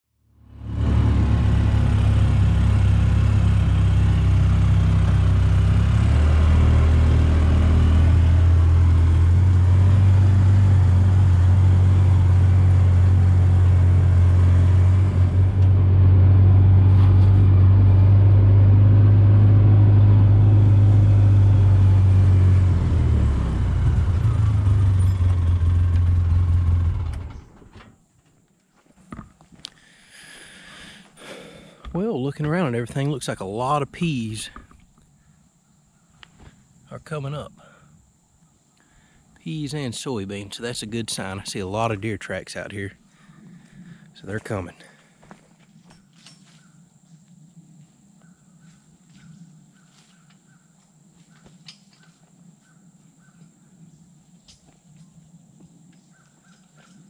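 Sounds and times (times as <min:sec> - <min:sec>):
utility vehicle engine running: 0:00.4 - 0:28.0.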